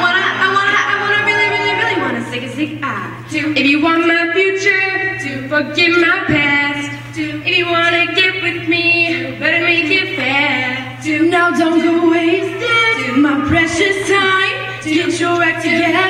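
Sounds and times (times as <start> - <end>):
women singing pop song: 3.3 - 16.0.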